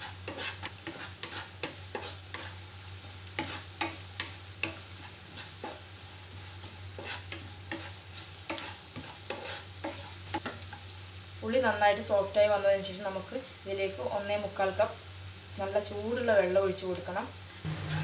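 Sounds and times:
wooden spatula scraping a pan: 0.0 - 2.7, 3.4 - 10.8
onions sizzling in oil: 0.0 - 18.0.

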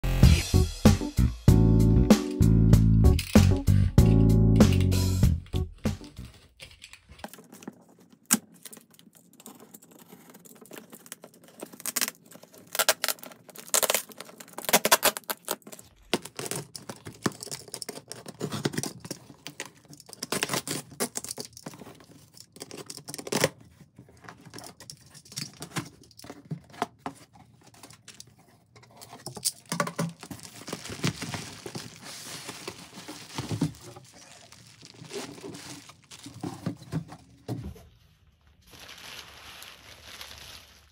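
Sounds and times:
bubble wrap crinkling: 5.4 - 26.3, 29.2 - 40.9
tape tearing: 8.2 - 21.8, 29.3 - 36.8
knife slicing packing tape: 11.8 - 15.6
cardboard scraping: 30.1 - 37.9.

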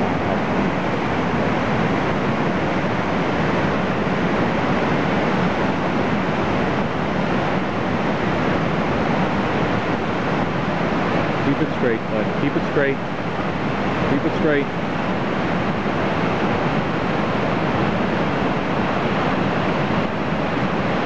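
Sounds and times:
whitewater rapid roaring: 0.0 - 21.0.

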